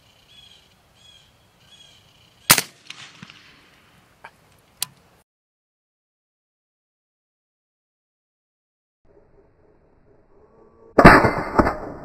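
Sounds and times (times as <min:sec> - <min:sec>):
bird chirps: 0:00.0 - 0:02.6
suppressed rifle shot: 0:02.4 - 0:03.7.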